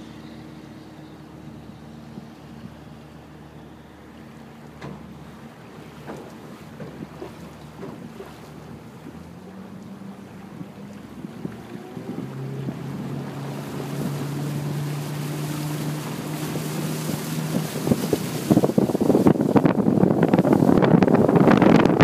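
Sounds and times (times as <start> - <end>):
motorboat engine humming: 0.0 - 22.0
water noise: 0.0 - 22.0
wind buffeting microphone: 4.3 - 22.0.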